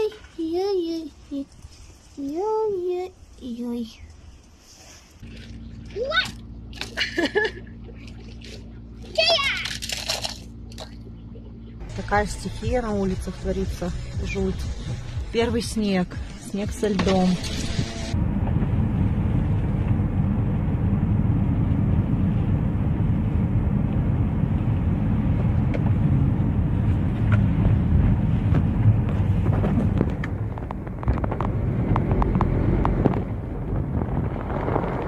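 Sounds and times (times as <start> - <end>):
car road rumble inside cabin: 5.2 - 35.0.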